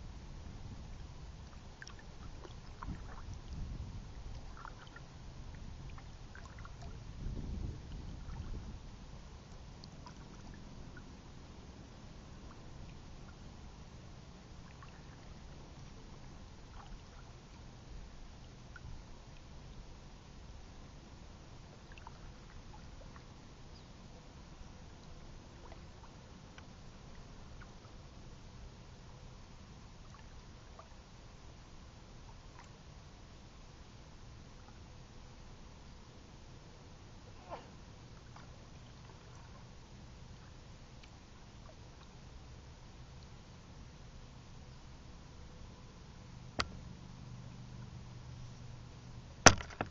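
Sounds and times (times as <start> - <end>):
wind rumble on microphone: 0.0 - 11.0
faint low rumble: 0.0 - 49.9
faint ticks and drips: 0.9 - 7.0, 9.4 - 11.2, 12.2 - 21.0, 21.6 - 32.9, 38.0 - 43.6.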